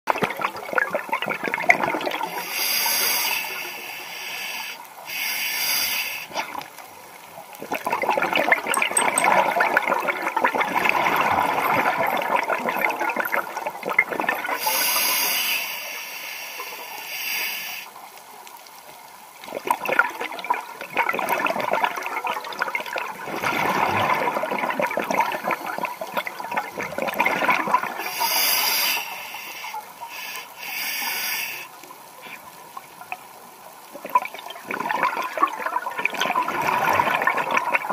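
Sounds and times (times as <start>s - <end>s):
diver breathing through regulator: 2.2s - 6.4s, 14.6s - 17.9s, 28.0s - 31.7s.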